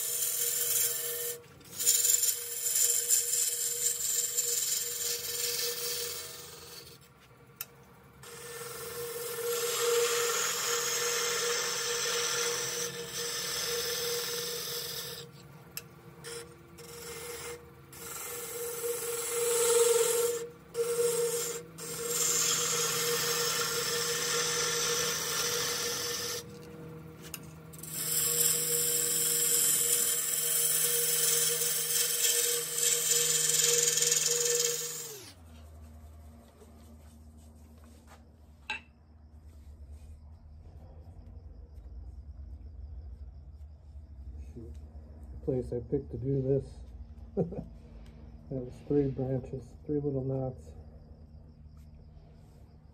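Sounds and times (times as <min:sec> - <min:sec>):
turning tool rasping wood: 0:00.0 - 0:07.0, 0:08.2 - 0:15.4, 0:16.2 - 0:35.4
wood lathe humming: 0:00.0 - 0:07.0, 0:08.0 - 0:35.4.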